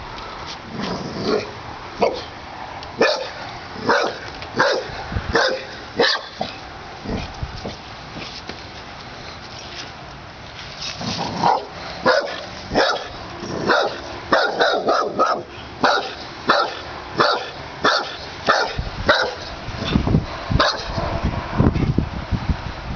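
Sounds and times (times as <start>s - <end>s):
dog barking: 2.0s - 2.3s, 3.0s - 6.4s, 11.4s - 19.5s, 20.6s - 21.0s.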